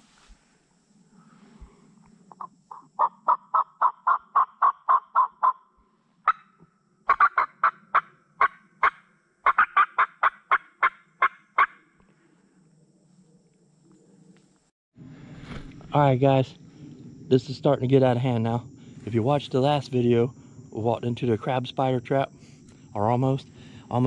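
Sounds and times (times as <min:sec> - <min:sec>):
turkey yelping: 0:02.7 - 0:05.6, 0:07.1 - 0:11.8.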